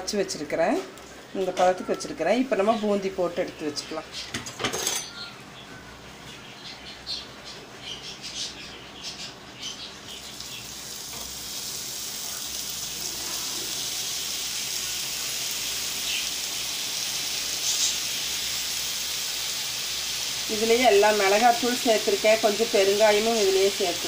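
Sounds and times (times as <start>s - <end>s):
batter frying in hot oil: 10.0s - 24.0s
high sizzle: 10.0s - 24.0s.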